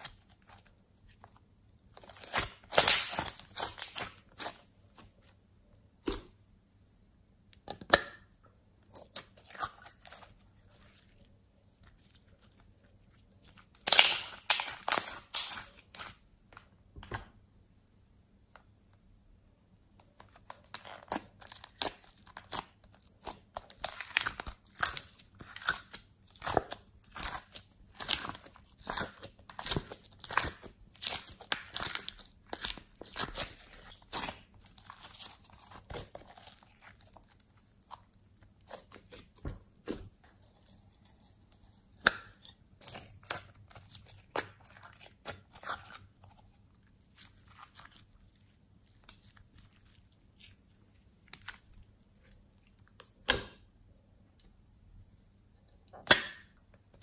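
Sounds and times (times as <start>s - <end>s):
slime crackling and popping: 2.0s - 4.6s, 13.8s - 16.2s, 20.6s - 39.2s.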